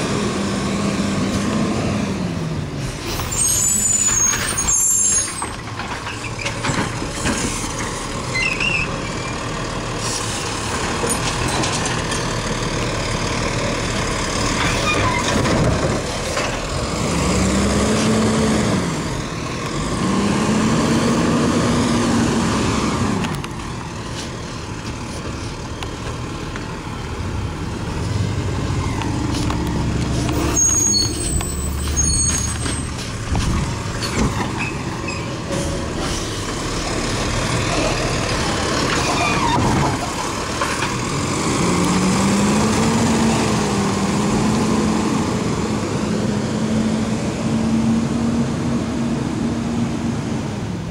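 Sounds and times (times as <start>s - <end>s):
high squeal: 3.1s - 6.4s, 8.3s - 9.4s, 30.4s - 33.0s
garbage truck engine revving: 6.9s - 24.1s, 27.3s - 50.4s.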